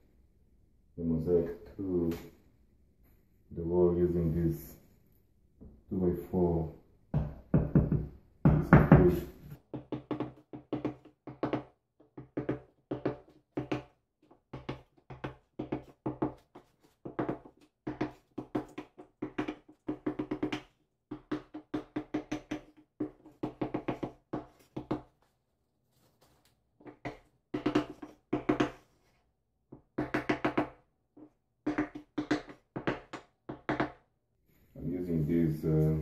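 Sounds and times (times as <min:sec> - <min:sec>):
hammer knocking on wooden block: 0:07.2 - 0:13.9, 0:17.0 - 0:25.1, 0:26.8 - 0:28.8, 0:29.7 - 0:34.0.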